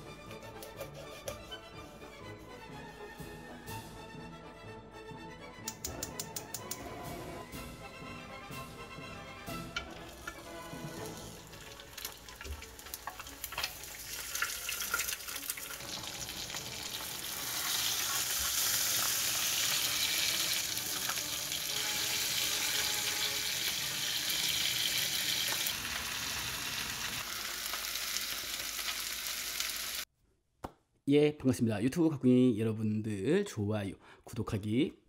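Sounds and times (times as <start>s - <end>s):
fish sizzling on a griddle pan: 10.8s - 30.0s.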